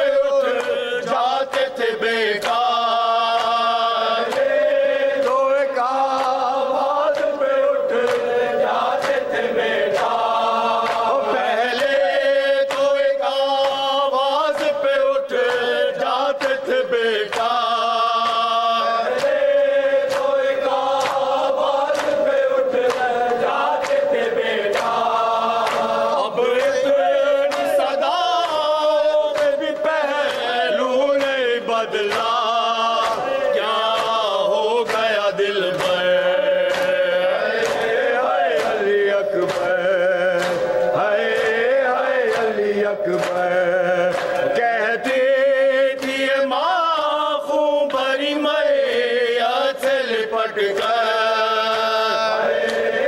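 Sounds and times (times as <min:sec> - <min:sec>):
men chanting in unison: 0:00.0 - 0:53.0
hands slapping chests: 0:00.5 - 0:05.4, 0:06.1 - 0:13.0, 0:17.3 - 0:46.3.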